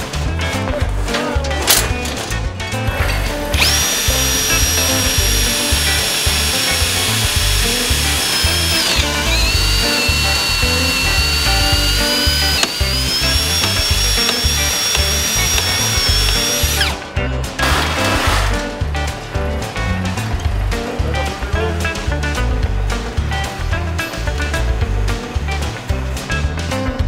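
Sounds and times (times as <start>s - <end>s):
background music with a beat: 0.0s - 27.0s
electric drill whining: 3.0s - 18.3s.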